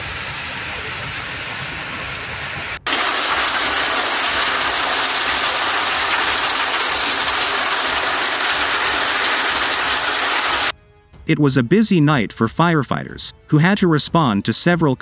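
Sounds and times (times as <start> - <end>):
heavy hail falling: 2.8 - 10.7.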